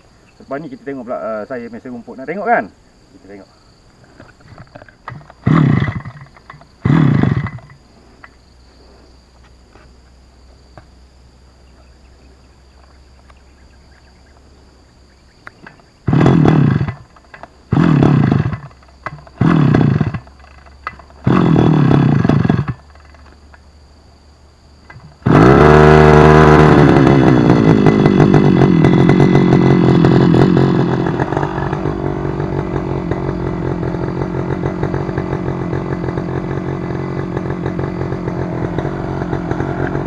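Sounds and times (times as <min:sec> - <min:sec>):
small petrol engine pull-starting: 0:04.1 - 0:08.4, 0:15.5 - 0:23.6, 0:24.8 - 0:40.0
petrol engine running: 0:24.9 - 0:40.0.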